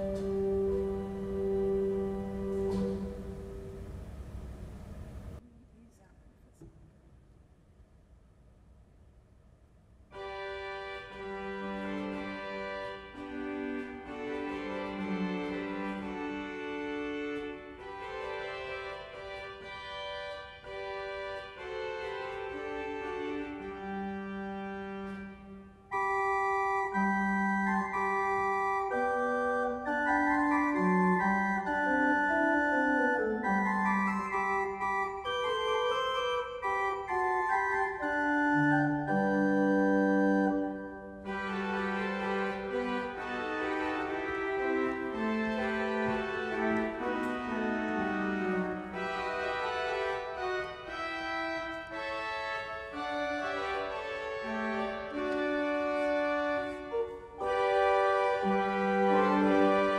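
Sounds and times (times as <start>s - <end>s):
pipe organ playing: 0.0s - 5.4s, 10.1s - 59.9s.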